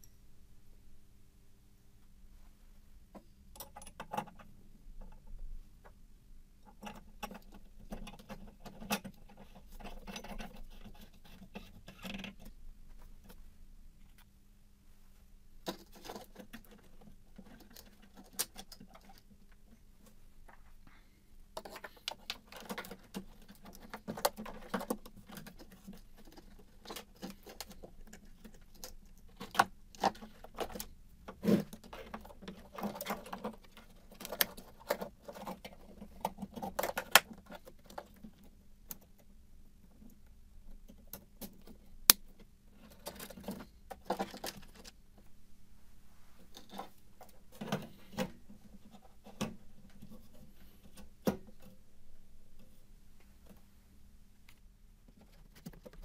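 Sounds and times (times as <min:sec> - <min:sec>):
plastic parts clicking and rattling: 0:06.7 - 0:12.6, 0:15.6 - 0:20.7, 0:21.6 - 0:45.3, 0:46.5 - 0:51.8.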